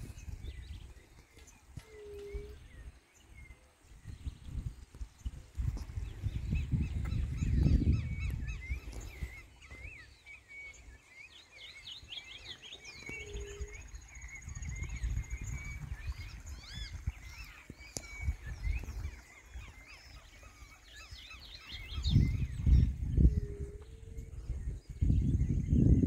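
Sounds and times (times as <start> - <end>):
small birds chirping: 0.0 - 26.0.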